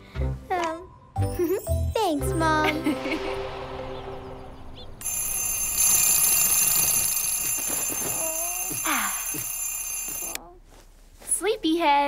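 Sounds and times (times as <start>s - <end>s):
alarm clock ringing: 5.0s - 10.4s.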